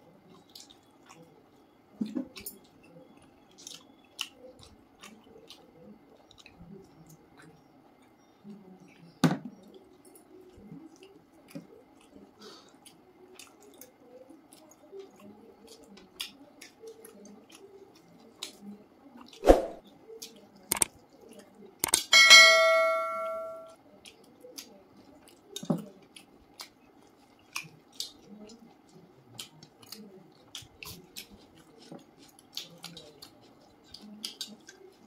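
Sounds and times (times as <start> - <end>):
squelching and chewing: 0.0 - 19.4, 24.0 - 35.0
bright ringing clink: 22.0 - 23.7.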